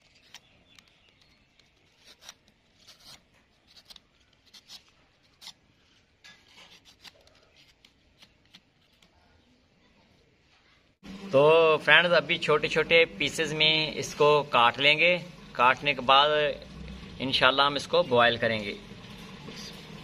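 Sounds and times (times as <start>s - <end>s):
peeler scraping melon rind: 0.0s - 9.2s.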